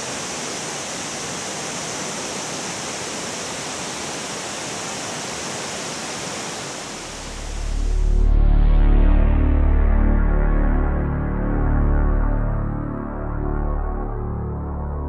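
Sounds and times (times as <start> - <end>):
steady rushing noise: 0.0 - 8.5
music with deep bass: 7.3 - 15.0.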